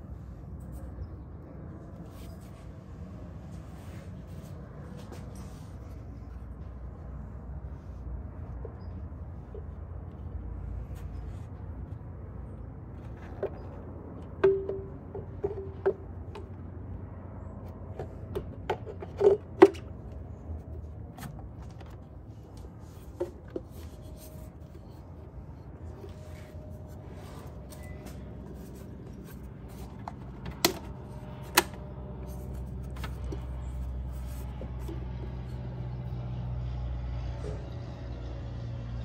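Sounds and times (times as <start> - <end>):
low hum: 0.0 - 39.0
plastic panels clicking and knocking: 13.1 - 16.6, 29.4 - 33.6.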